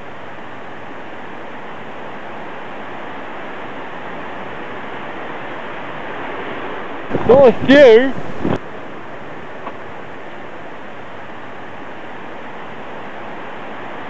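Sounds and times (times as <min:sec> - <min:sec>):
steady rushing noise: 0:00.0 - 0:14.0.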